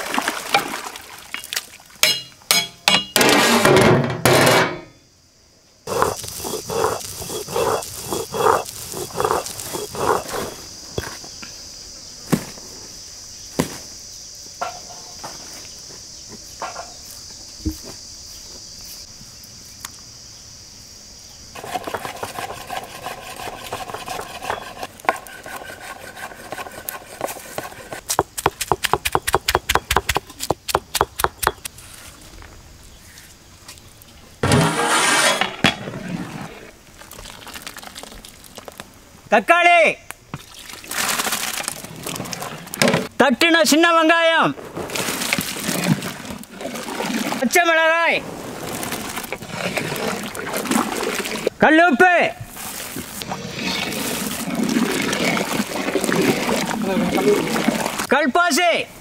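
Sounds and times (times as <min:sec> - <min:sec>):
crickets chirring: 0:00.0 - 0:34.5, 0:35.3 - 0:59.0
stone roller grinding spice paste: 0:05.9 - 0:10.6, 0:21.6 - 0:31.7
knife chopping on a block: 0:28.1 - 0:31.7.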